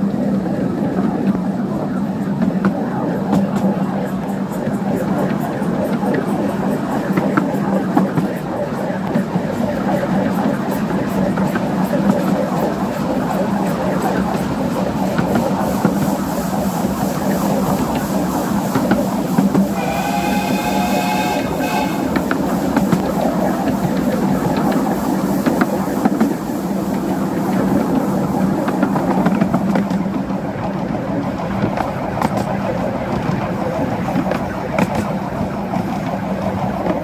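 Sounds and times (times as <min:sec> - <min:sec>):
train carriages rumbling on track: 0:00.0 - 0:37.0
steam locomotive whistle: 0:19.6 - 0:22.5
wheels clicking over rail joints: 0:21.3 - 0:37.0.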